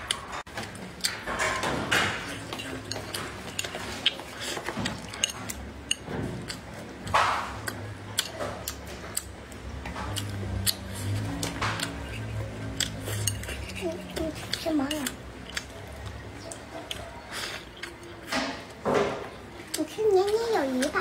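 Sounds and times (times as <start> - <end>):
person chewing food: 2.0 - 21.0
wet smacking mouth noises: 10.2 - 15.8.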